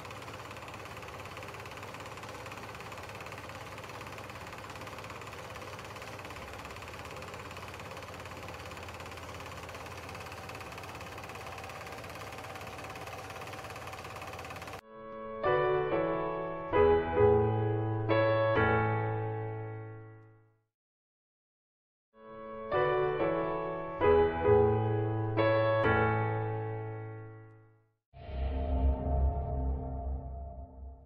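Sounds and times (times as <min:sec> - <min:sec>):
film projector whirring: 0:00.0 - 0:14.8.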